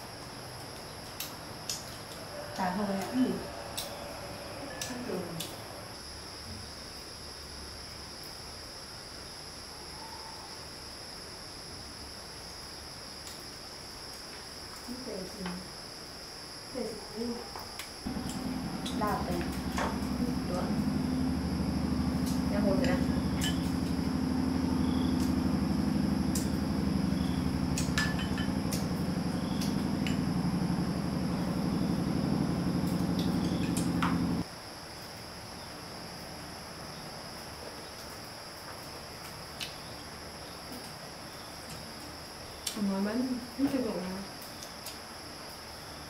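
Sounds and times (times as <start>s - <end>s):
high-pitched insect chorus: 0.0s - 46.0s
small motor humming: 18.1s - 34.4s.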